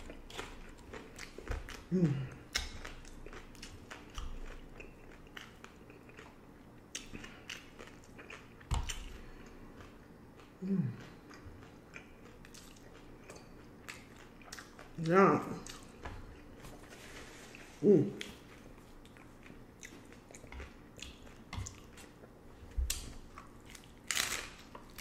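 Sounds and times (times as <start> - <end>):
person humming: 1.9 - 2.4, 10.6 - 11.2, 17.8 - 18.3
crunching taco shell: 22.9 - 25.0.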